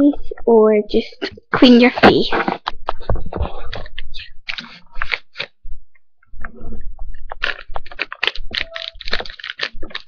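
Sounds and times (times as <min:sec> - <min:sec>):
plastic wipes pack crinkling: 0:07.2 - 0:10.0.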